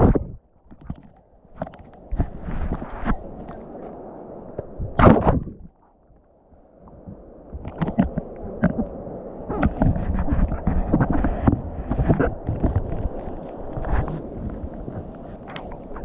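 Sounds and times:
muffled rumbling: 0.0 - 0.5, 6.9 - 16.0
paddle knocks and thuds: 4.9 - 5.7.

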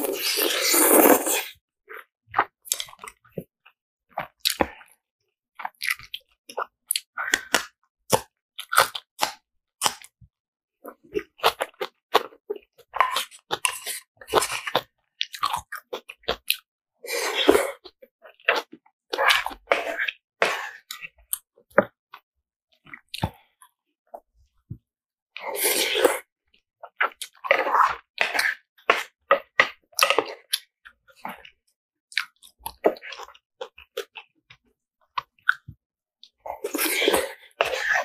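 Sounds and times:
loud noodle slurp: 0.0 - 1.6, 17.0 - 17.8, 25.4 - 26.3, 36.5 - 38.0.

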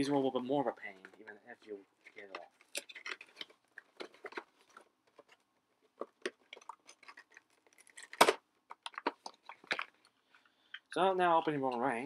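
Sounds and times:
plastic packaging crinkling: 2.0 - 10.9.

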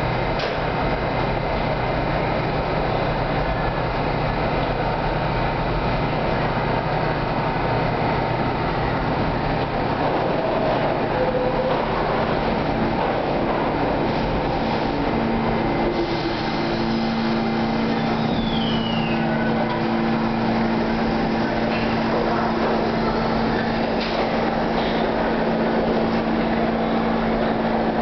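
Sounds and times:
subway train wheels rumbling: 0.0 - 28.0
high falling squeal: 17.9 - 19.6.

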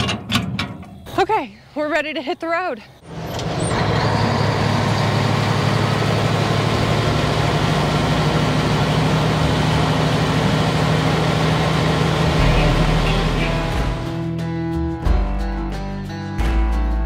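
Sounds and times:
truck engine running: 3.0 - 14.3.

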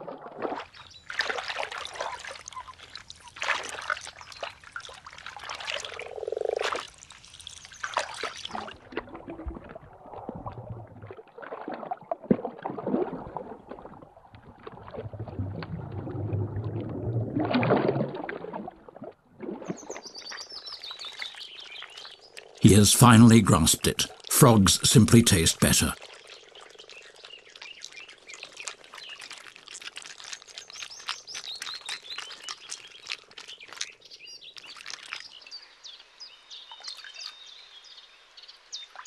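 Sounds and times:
water splashing and gurgling: 0.0 - 20.2, 25.9 - 35.3.

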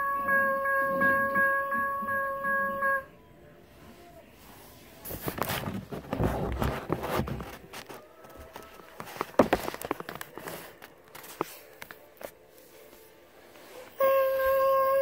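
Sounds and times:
steady horn tone: 13.9 - 15.0.

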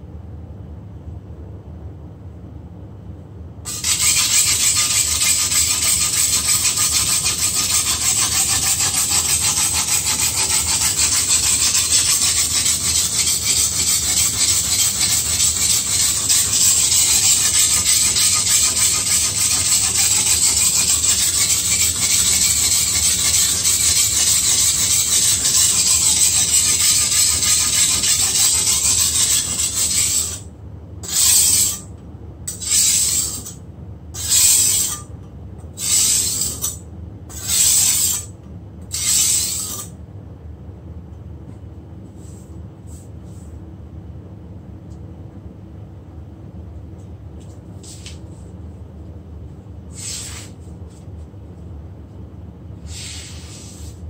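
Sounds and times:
blade scraping on whetstone: 3.7 - 30.4, 31.0 - 31.9, 32.5 - 33.6, 34.2 - 35.1, 35.8 - 38.3, 38.9 - 39.9, 49.9 - 50.6.

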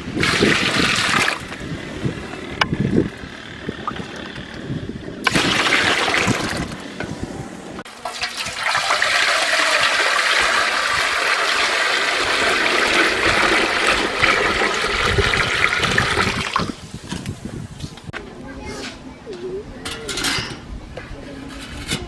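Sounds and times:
water pouring into a metal pot: 0.2 - 1.6, 5.3 - 6.8, 7.9 - 16.8
water splashing in a pot: 0.2 - 1.6, 5.2 - 6.8, 7.9 - 16.8.

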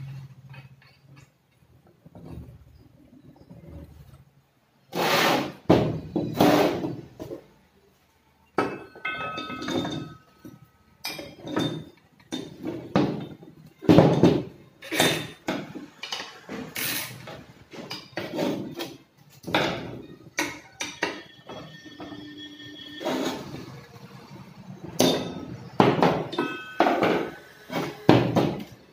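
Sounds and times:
metal clanks on wooden bench: 8.6 - 16.6.

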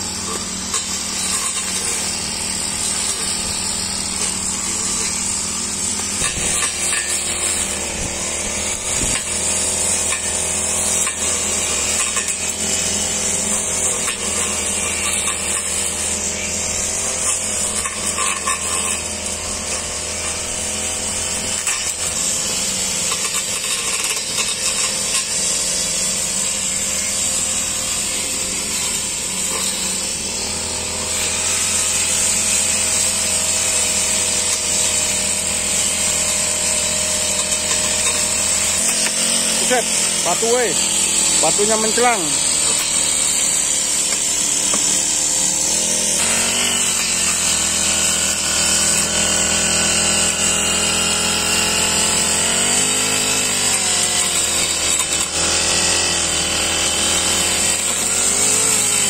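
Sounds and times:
brush cutter engine running: 0.0 - 59.0
metal blade cutting grass: 0.0 - 59.0.

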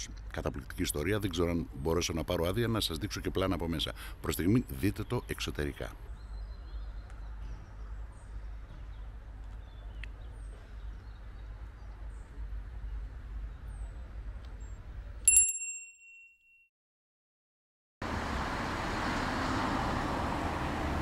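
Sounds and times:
bell-like ding: 15.3 - 16.7.

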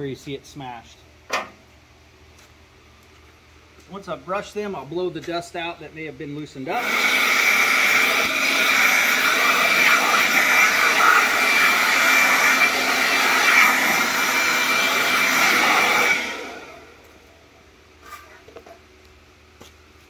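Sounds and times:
blower rushing air with whine: 5.8 - 17.8.

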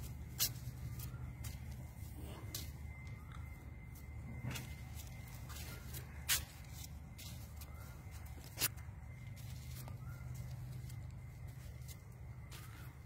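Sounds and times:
steady low hum: 0.0 - 13.0
rustling of leaves: 4.4 - 13.0.

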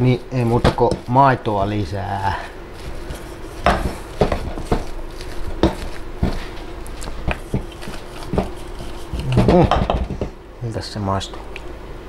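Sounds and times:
potatoes being mashed: 0.0 - 10.4
wood knocking on metal pot: 0.5 - 1.2, 3.0 - 10.4.

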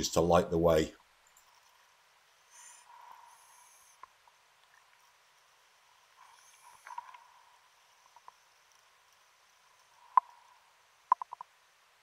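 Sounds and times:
faint underwater hiss: 1.5 - 12.0
soft clicks: 11.1 - 11.6.

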